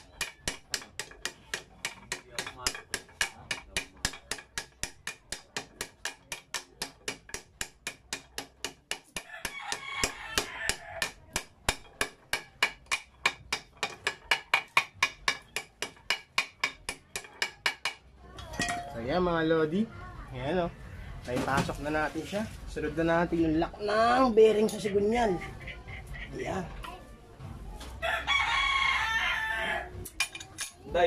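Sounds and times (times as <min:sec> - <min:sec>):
hammer tapping steel rod: 0:00.0 - 0:18.0.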